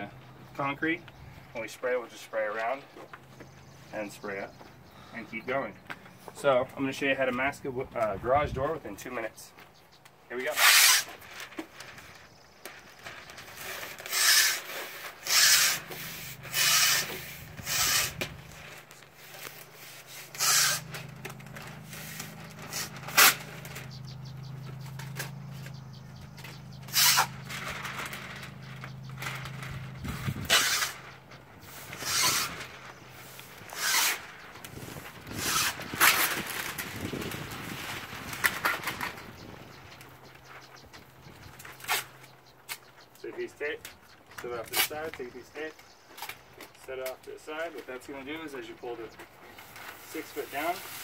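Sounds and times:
masking paper rasping and rustling: 0:10.3 - 0:51.0
low hum: 0:20.4 - 0:35.9.

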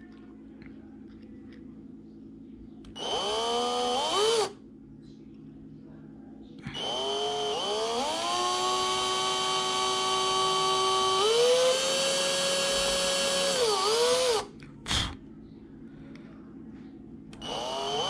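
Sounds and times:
electric drill whining: 0:03.0 - 0:04.6, 0:06.7 - 0:14.5, 0:17.4 - 0:18.0.

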